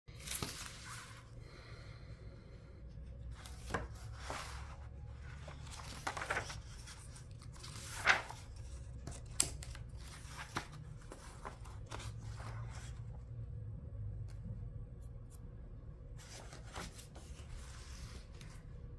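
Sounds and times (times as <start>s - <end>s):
book pages turning: 0.1s - 1.4s, 3.2s - 13.2s, 16.2s - 18.8s
steady low hum: 0.2s - 18.9s.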